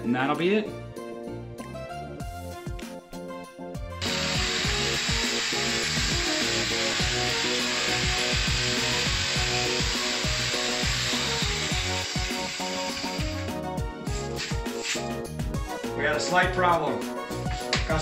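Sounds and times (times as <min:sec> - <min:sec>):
background music: 0:00.0 - 0:18.0
power tool cutting wall panel: 0:04.0 - 0:15.0.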